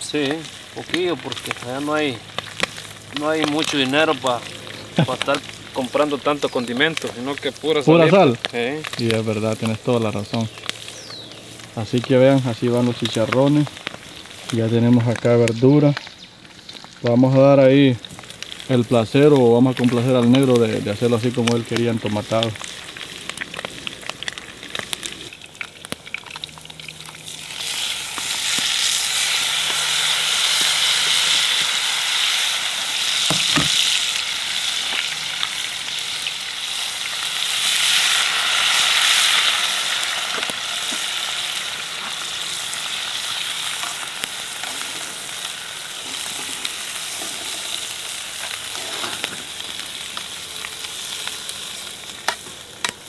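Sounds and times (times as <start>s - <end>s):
meat sizzling in a pan: 0.0s - 53.0s
water poured into hot pan: 18.0s - 52.0s.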